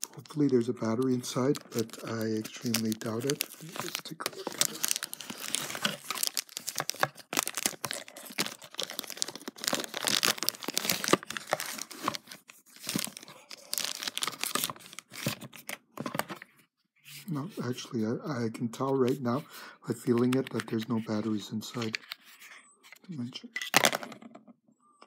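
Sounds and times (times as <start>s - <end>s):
plastic packaging crinkling: 0.0s - 15.4s.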